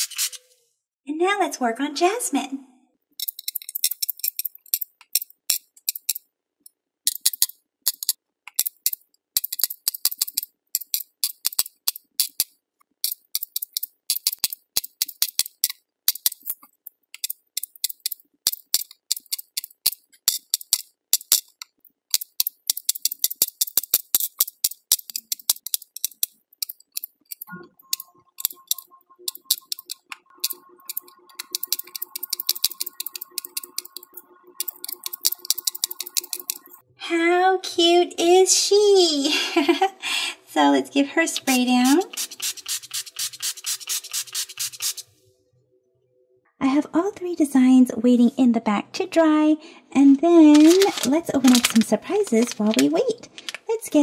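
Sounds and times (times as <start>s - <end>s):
beads clicking onto plastic tray: 50.5s - 53.6s.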